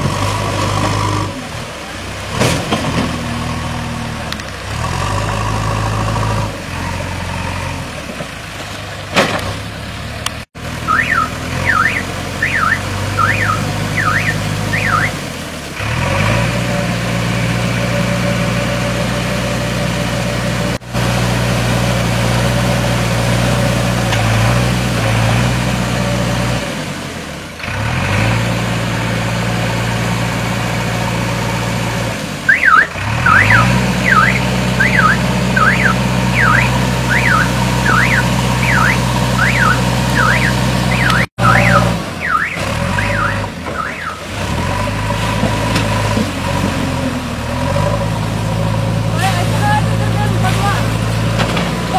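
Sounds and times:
diesel engine running: 0.0 - 51.9
warbling electronic alarm: 10.9 - 15.2, 32.5 - 44.2.

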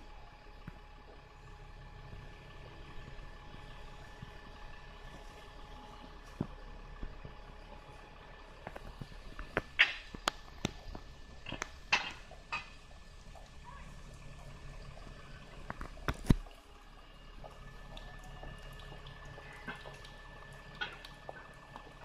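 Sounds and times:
bus engine idling: 0.0 - 22.0.

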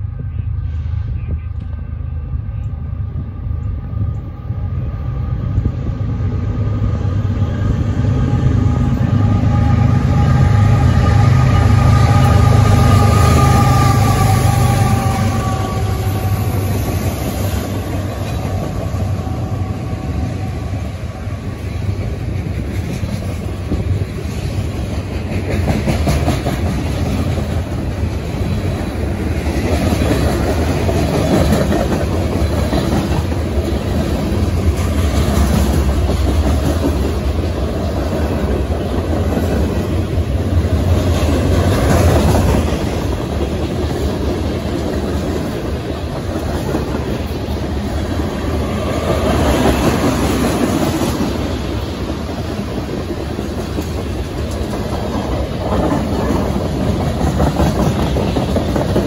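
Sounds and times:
freight train rumbling past: 0.0 - 59.0
train wheels clacking over rail joints: 21.8 - 59.0.

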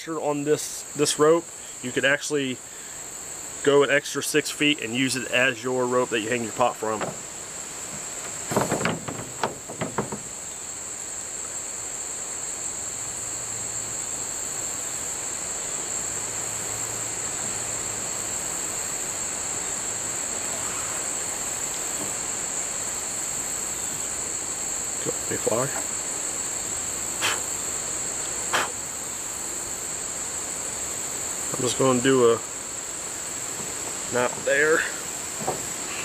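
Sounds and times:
insect chorus drone: 0.0 - 36.0
brief knocks: 7.0 - 7.3, 7.9 - 10.3.

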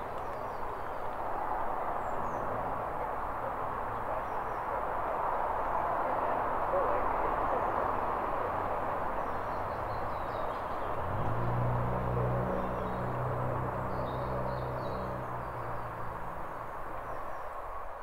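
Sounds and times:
small birds chirping: 9.1 - 11.6.

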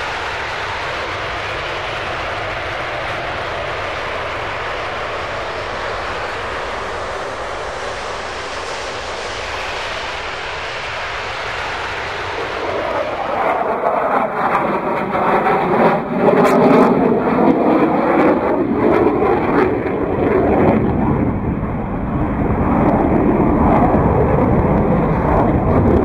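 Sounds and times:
jet aircraft engines passing: 0.0 - 26.0.

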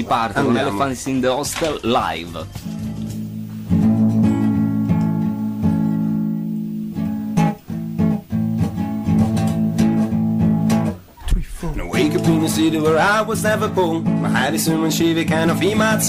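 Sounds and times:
guitar strumming chords: 2.4 - 16.0.

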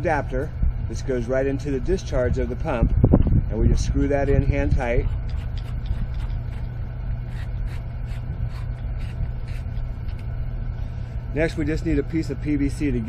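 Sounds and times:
low mechanical drone: 0.0 - 13.0.

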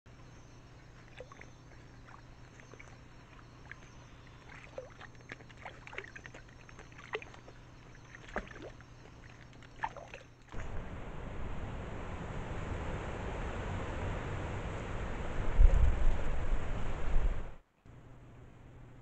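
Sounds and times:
steady low hum: 0.1 - 19.0
water splashing in rock pool: 0.9 - 10.7.

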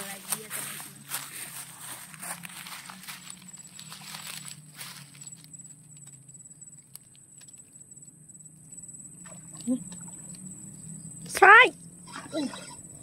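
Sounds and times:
high-pitched drone: 0.0 - 13.0
low hum: 0.0 - 13.0.

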